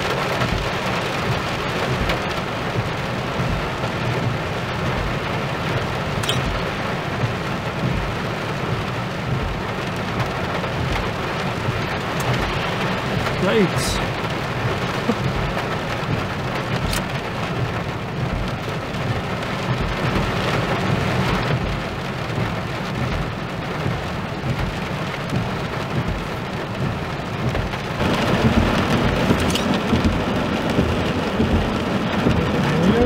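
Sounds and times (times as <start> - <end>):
heavy rain: 0.0 - 33.0
thunder rumbling: 26.8 - 33.0.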